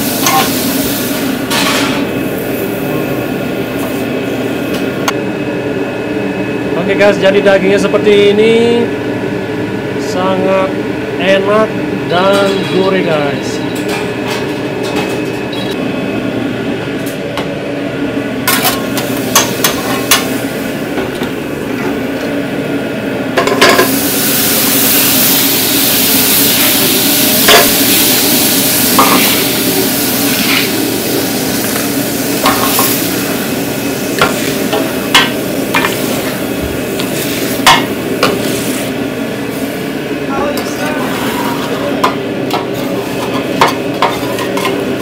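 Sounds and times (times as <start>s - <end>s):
food sizzling loudly: 0.0s - 4.7s, 23.6s - 40.1s
steady hum: 0.0s - 45.0s.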